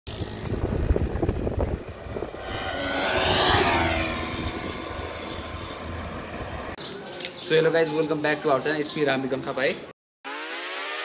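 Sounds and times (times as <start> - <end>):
vehicle rumble and buffeting: 0.1 - 6.8
vehicle rushing past: 0.1 - 6.8.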